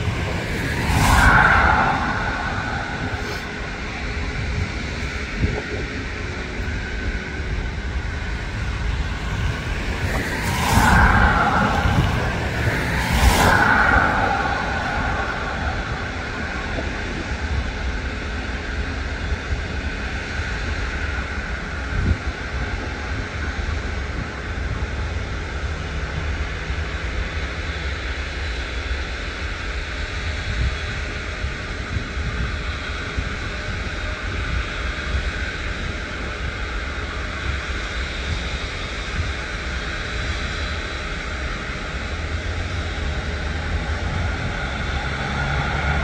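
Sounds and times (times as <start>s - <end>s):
deep rumble: 0.0s - 20.1s
jet engines running: 0.0s - 46.0s.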